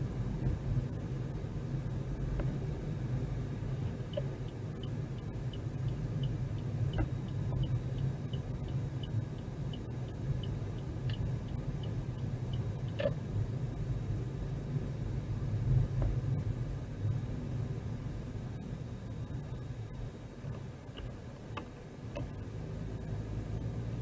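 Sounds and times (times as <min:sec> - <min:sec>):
car engine and road rumble: 0:00.0 - 0:24.0
turn signal ticking: 0:03.9 - 0:13.3, 0:20.5 - 0:24.0.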